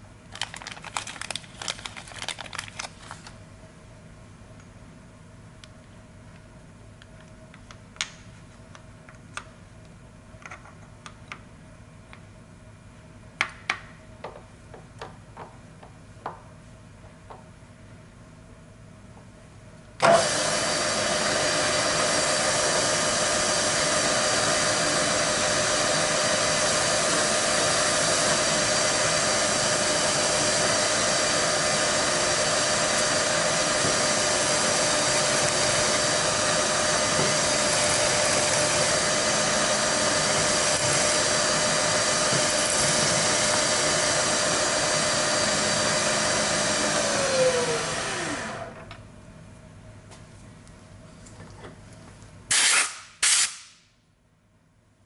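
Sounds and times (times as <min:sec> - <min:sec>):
milling machine spindle running: 0:20.0 - 0:48.8
spindle winding down whine: 0:20.0 - 0:48.9.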